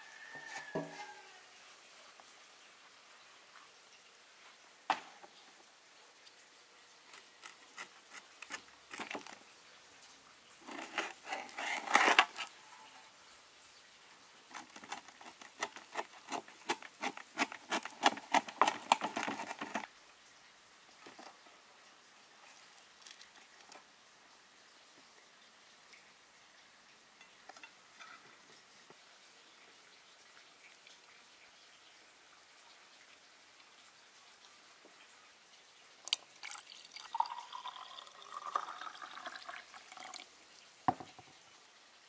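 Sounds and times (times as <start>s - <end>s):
hard objects tapping and clicking: 14.5s - 19.9s.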